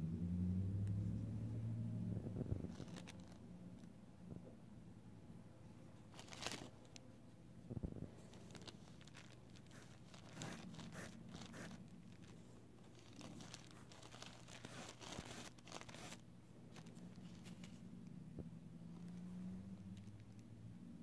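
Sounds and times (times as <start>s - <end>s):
rustling and crinkling: 2.2s - 4.4s, 6.0s - 17.9s.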